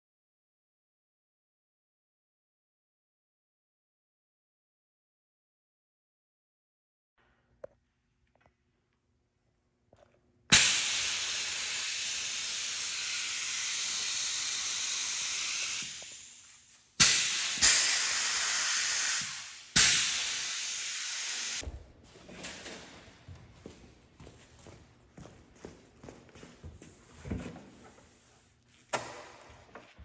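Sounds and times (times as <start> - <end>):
compressed air hissing: 10.5 - 21.6.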